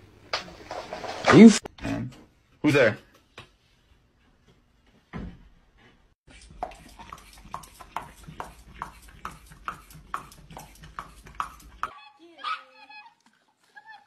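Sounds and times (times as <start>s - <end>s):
dog crunching raw carrot: 6.3s - 11.9s.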